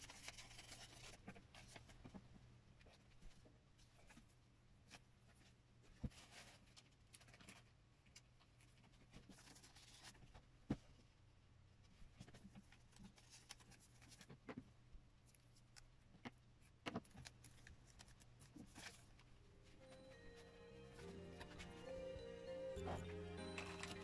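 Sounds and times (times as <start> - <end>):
paper rustling: 0.0 - 11.0, 12.1 - 14.4, 16.9 - 20.2, 22.8 - 24.0.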